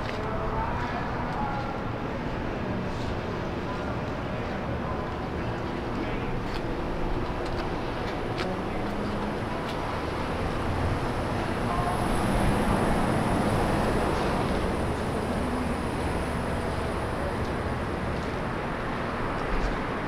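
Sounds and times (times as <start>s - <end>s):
road vehicle noise: 0.0s - 20.0s.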